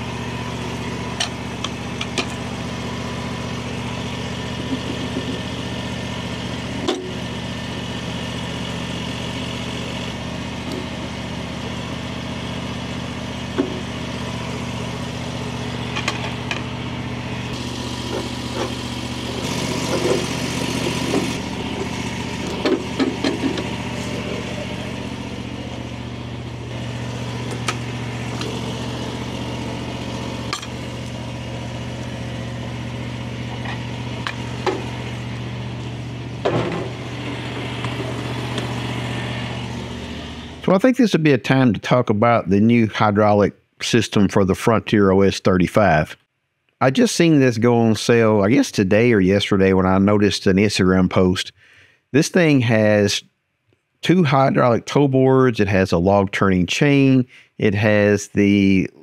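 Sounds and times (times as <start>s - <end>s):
sawmill engine running: 0.0s - 41.7s
saw head clanking and knocking: 1.2s - 2.4s, 15.9s - 16.7s, 22.5s - 23.8s.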